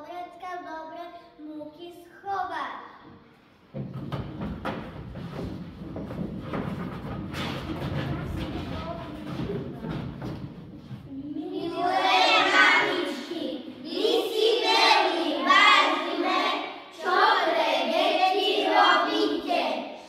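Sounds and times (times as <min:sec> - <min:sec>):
young children singing: 0:11.1 - 0:20.0.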